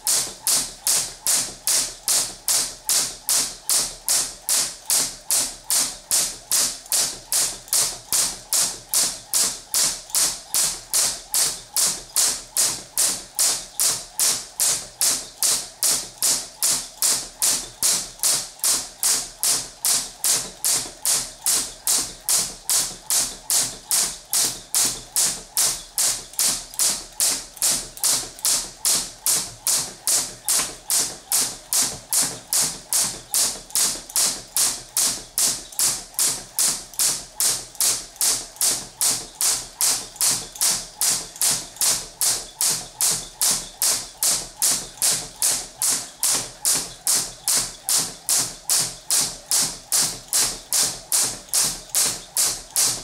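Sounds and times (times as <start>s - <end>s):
jump rope slapping the floor: 0.0s - 53.0s.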